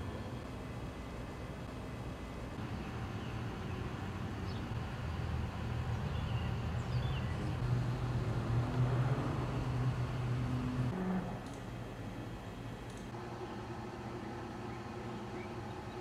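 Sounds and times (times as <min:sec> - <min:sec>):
bird chirps: 0:05.9 - 0:07.6, 0:14.6 - 0:16.0.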